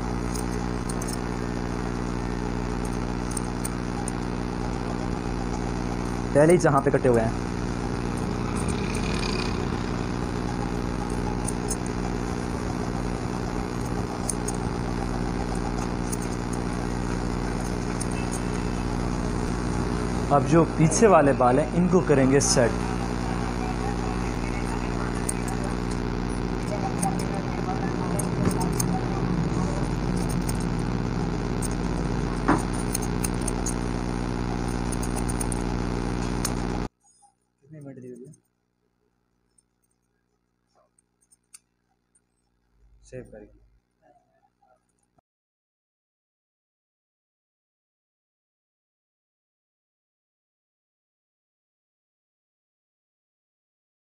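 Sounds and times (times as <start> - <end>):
low mechanical hum: 0.0 - 38.5
scissors snipping hair: 0.2 - 1.2, 11.0 - 11.9, 13.8 - 14.6, 15.7 - 16.7, 24.5 - 29.0, 31.5 - 33.8, 34.5 - 36.7.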